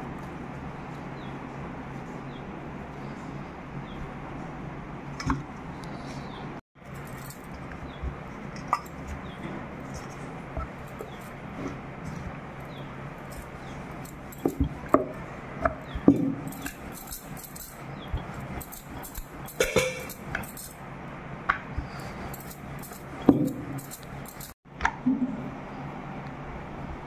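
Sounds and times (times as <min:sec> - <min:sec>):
steady low hum: 0:00.0 - 0:27.0
glass bangles clinking: 0:06.9 - 0:08.0, 0:13.3 - 0:15.0, 0:16.1 - 0:20.8, 0:22.0 - 0:24.6
rolling pin rolling dough: 0:06.9 - 0:20.8.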